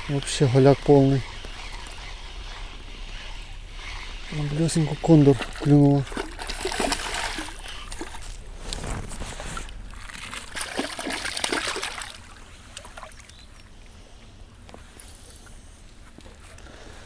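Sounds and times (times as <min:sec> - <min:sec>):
fish thrashing and splashing: 0:01.3 - 0:13.5.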